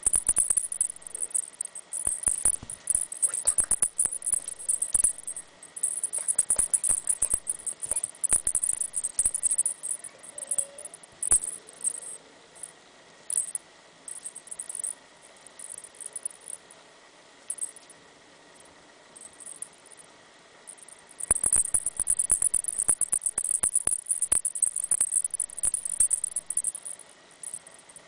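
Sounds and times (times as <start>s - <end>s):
cat toy rattling jingle: 0.0s - 12.1s, 21.2s - 27.6s.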